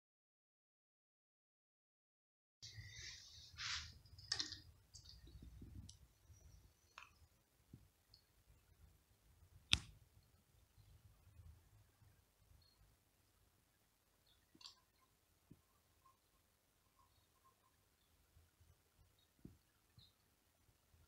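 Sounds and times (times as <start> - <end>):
rustling and handling noise: 2.7 - 8.0.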